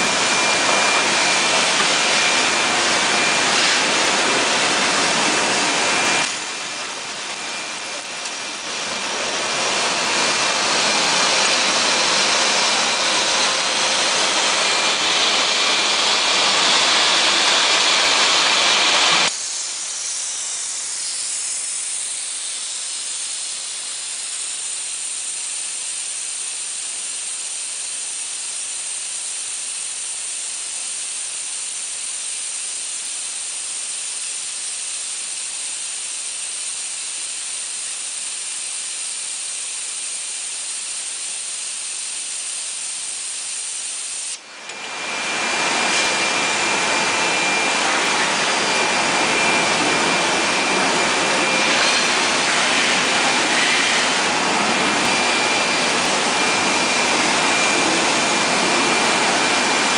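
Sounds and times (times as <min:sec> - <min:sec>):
gas burner flames hissing: 0:00.0 - 0:27.3, 0:45.6 - 0:58.2.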